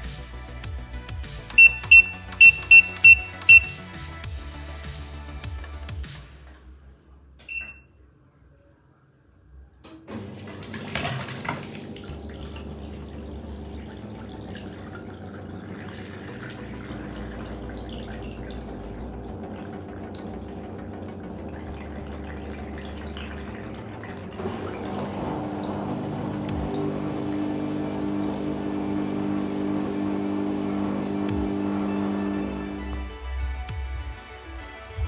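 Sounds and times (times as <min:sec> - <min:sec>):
drain pump humming: 0:00.0 - 0:03.9, 0:09.9 - 0:34.2
water splashing into basin: 0:10.2 - 0:28.9.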